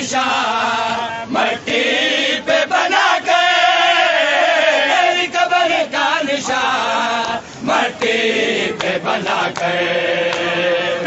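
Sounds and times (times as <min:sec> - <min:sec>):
men chanting a lament: 0:00.0 - 0:11.0.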